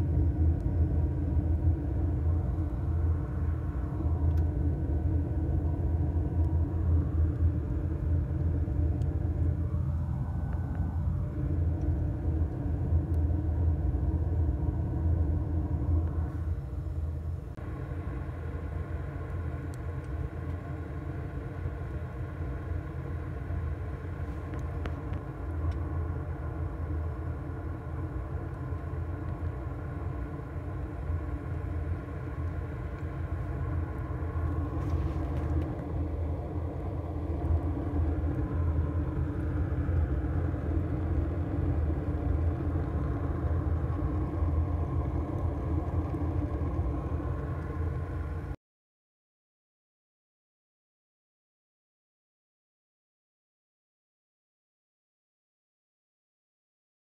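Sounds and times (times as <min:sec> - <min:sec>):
blower fan humming: 0:00.0 - 0:48.6
fire rumbling: 0:00.0 - 0:48.6.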